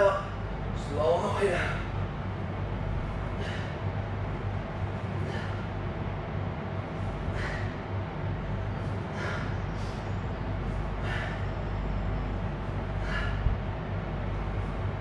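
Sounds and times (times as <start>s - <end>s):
steady low hum: 0.0s - 15.0s
man breathing out sharply: 3.2s - 4.0s, 5.0s - 5.8s, 7.0s - 8.0s, 8.8s - 10.1s, 10.7s - 11.8s, 12.7s - 13.7s.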